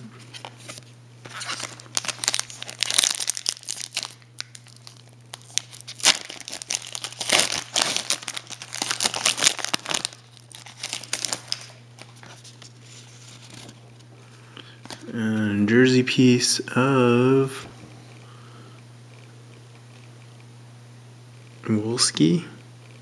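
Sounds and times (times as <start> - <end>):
foil wrapper tearing and crinkling: 1.3 - 13.8.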